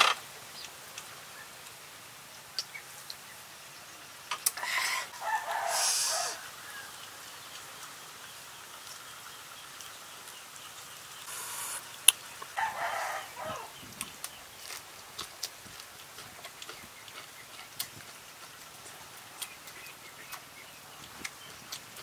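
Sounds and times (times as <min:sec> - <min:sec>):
chicken calling: 0:04.4 - 0:07.0, 0:11.3 - 0:14.0.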